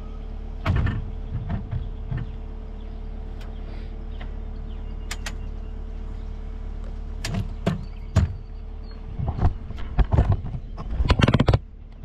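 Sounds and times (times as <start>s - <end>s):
engine idling: 0.0s - 12.0s
sharp clicks and knocks: 0.6s - 2.4s, 5.1s - 5.5s, 7.2s - 8.5s, 9.2s - 12.0s.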